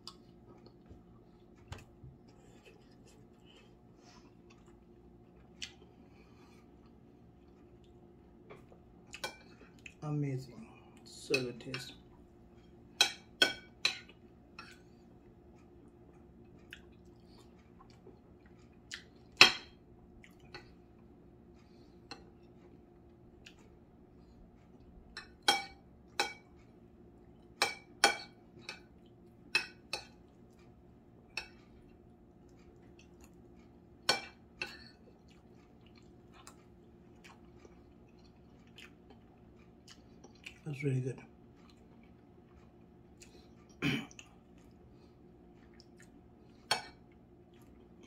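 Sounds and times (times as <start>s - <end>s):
quiet chewing: 0.0s - 10.0s, 13.8s - 19.4s, 20.0s - 25.3s, 28.4s - 48.0s
cutlery clinking on a plate: 25.2s - 26.5s.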